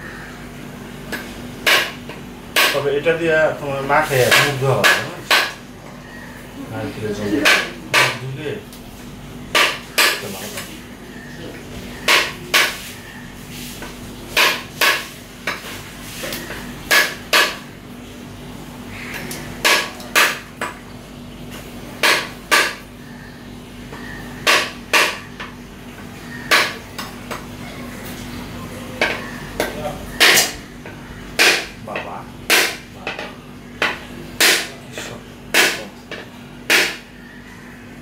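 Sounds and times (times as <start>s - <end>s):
knife striking coconut shell: 1.1s - 2.0s, 2.6s - 2.8s, 4.2s - 5.6s, 7.4s - 8.2s, 9.5s - 10.2s, 12.1s - 12.8s, 14.4s - 15.6s, 16.9s - 17.7s, 19.6s - 20.7s, 22.0s - 22.8s, 24.4s - 25.2s, 26.5s - 26.8s, 29.0s - 30.6s, 31.4s - 33.2s, 33.8s - 34.8s, 35.5s - 35.9s, 36.7s - 37.0s.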